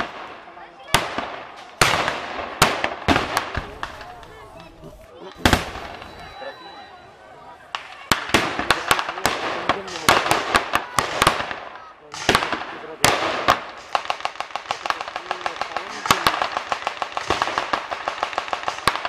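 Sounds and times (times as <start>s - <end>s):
single gunshots: 0.0s - 4.1s, 5.4s - 6.1s, 7.7s - 19.0s
machine-gun fire: 8.1s - 19.0s.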